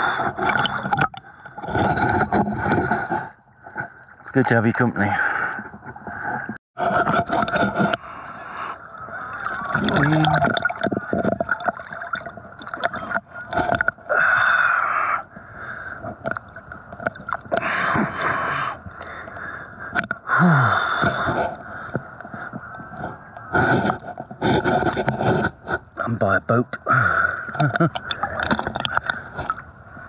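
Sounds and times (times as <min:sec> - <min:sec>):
water splashing from swimming: 0:07.1 - 0:14.8
swimmer breathing: 0:07.7 - 0:09.8, 0:14.1 - 0:16.2, 0:17.6 - 0:22.6.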